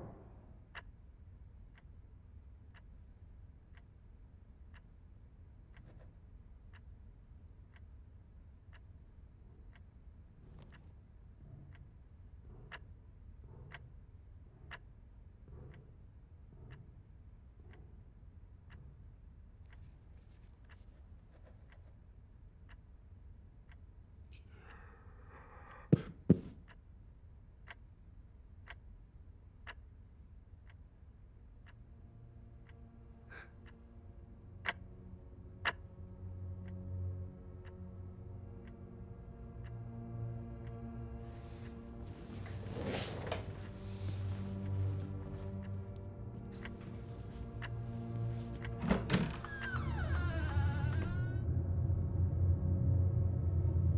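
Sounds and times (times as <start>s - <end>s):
clock ticking: 13.6s - 14.0s, 34.6s - 35.9s, 41.6s - 49.4s
low droning hum: 31.8s - 53.9s.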